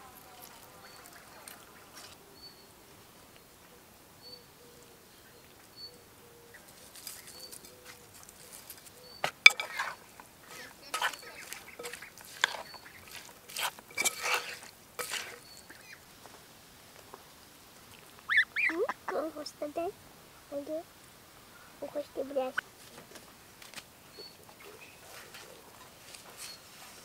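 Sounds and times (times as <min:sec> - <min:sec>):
spoon tossing salad in a bowl: 0:07.0 - 0:15.8
goose honking: 0:18.3 - 0:19.1.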